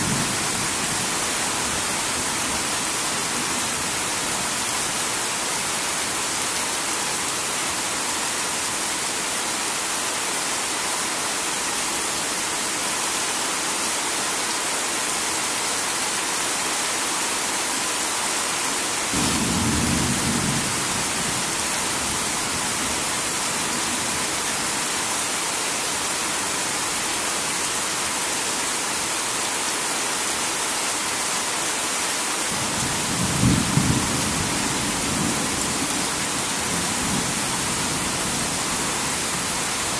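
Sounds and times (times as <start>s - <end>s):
heavy rain: 0.0s - 39.9s
low thunder rumbles: 19.2s - 22.3s.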